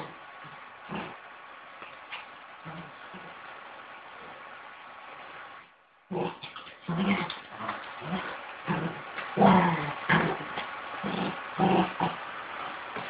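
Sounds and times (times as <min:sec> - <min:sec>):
puppies play-growling: 0:00.0 - 0:03.6, 0:06.1 - 0:13.0.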